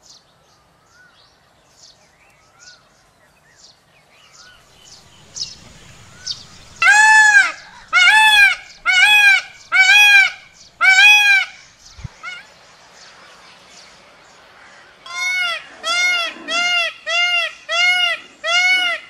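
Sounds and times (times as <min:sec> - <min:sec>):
peacock calling: 0:04.5 - 0:12.6, 0:14.5 - 0:19.0.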